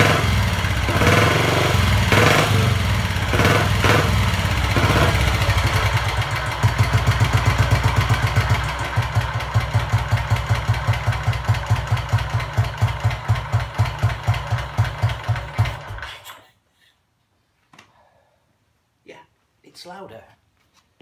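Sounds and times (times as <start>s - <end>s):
motorcycle engine thumping exhaust: 0.0s - 16.0s.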